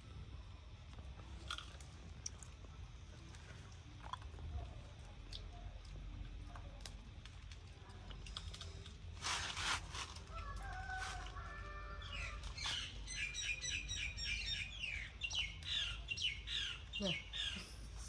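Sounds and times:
chewing and crunching food: 0.2 - 17.4
crunchy rustle: 1.1 - 13.3.

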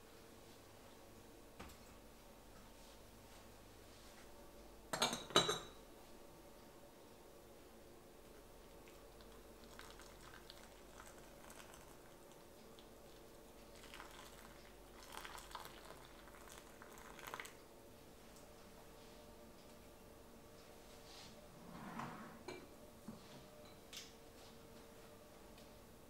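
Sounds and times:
faint steady hum: 0.0 - 26.0
water pouring into teapot: 8.8 - 17.6.

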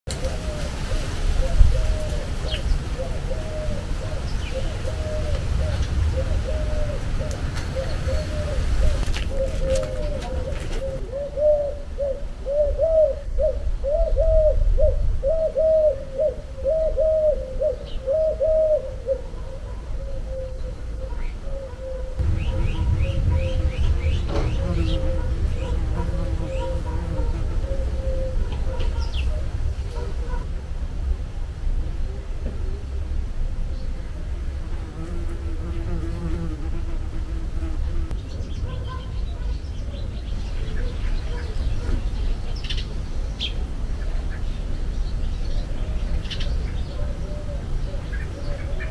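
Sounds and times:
dove cooing: 0.1 - 30.5, 46.9 - 48.9
low rumble: 22.2 - 26.2
bee buzzing: 34.8 - 38.2.

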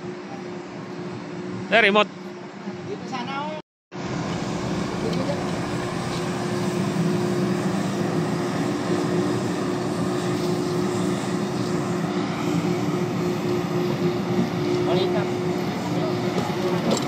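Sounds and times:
crane machinery droning: 4.0 - 17.0.

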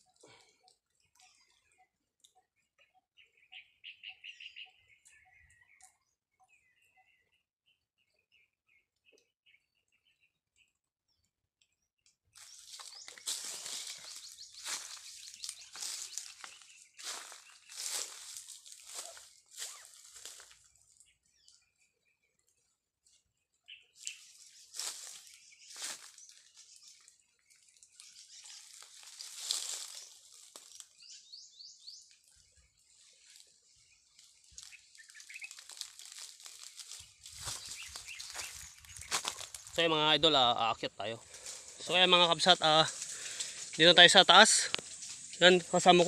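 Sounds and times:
faint bird chirps: 0.0 - 44.3
rustling in dry leaves: 12.4 - 21.0, 24.0 - 31.3, 32.3 - 40.0, 41.1 - 46.0
backpack rustling and crinkling: 12.5 - 20.2, 34.4 - 39.8.

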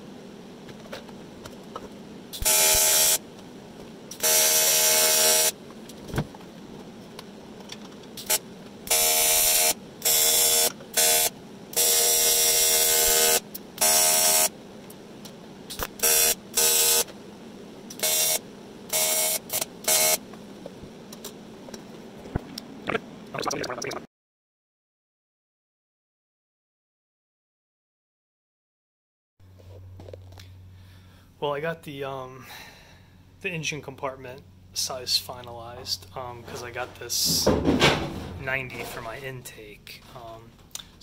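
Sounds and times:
welding arc buzzing: 0.9 - 24.0.

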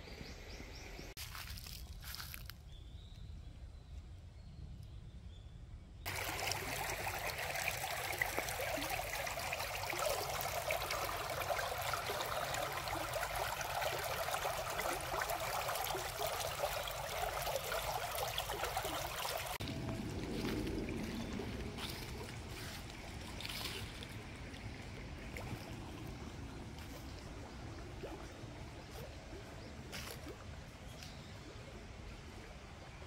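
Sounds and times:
stream babbling over rocks: 6.1 - 19.7.

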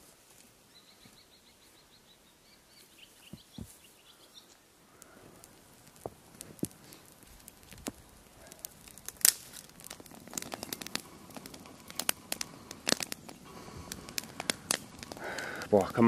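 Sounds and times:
twig fire crackling: 0.0 - 16.0
sharp pops of fire: 4.9 - 16.0.

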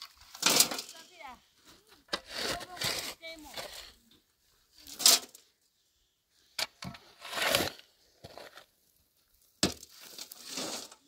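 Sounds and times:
shovel scooping gravel: 0.0 - 1.1, 2.1 - 4.0, 7.0 - 8.7, 9.7 - 11.0
stones rattling in metal wheelbarrow: 0.0 - 1.1, 4.9 - 5.4, 9.6 - 11.0.

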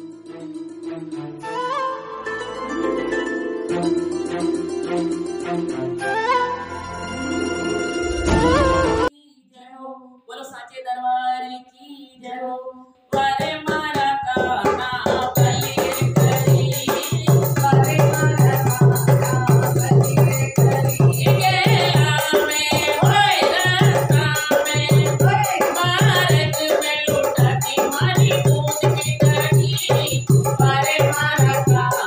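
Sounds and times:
woman singing: 8.5 - 32.0
drum beat: 13.2 - 32.0
jingling percussion: 13.2 - 32.0.

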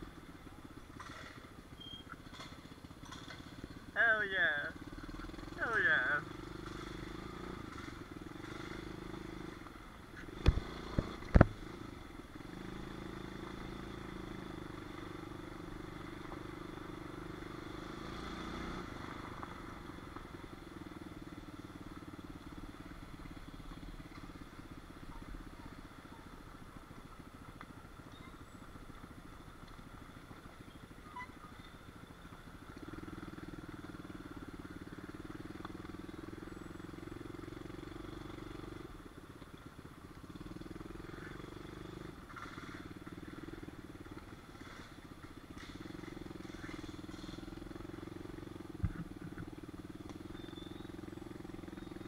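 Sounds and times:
pit bike engine running: 0.0 - 52.0.

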